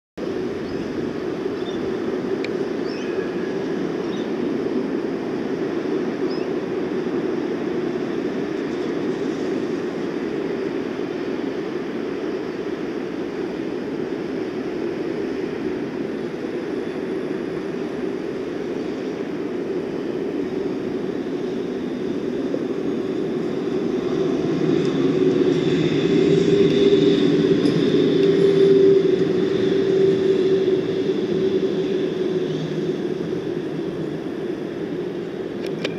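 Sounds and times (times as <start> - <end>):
road traffic hum: 0.2 - 35.9
tram passing with whine: 0.2 - 35.9.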